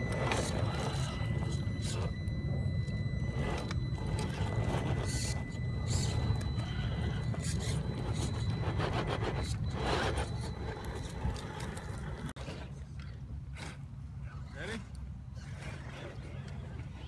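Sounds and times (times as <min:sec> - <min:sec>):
electric motor and gearbox whine: 0:00.0 - 0:12.4.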